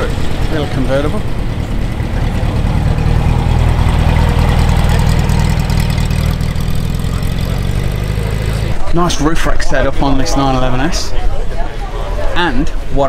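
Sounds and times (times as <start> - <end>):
car engine driving past: 0.0 - 9.0.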